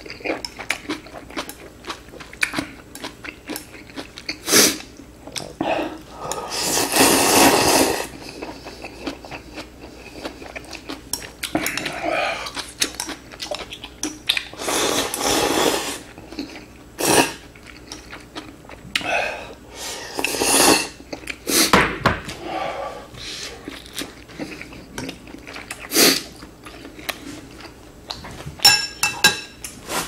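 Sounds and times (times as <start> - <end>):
loud slurps: 6.5 - 8.1
chewing: 8.1 - 14.6, 17.5 - 19.1, 23.6 - 28.4
breaths: 22.4 - 23.6.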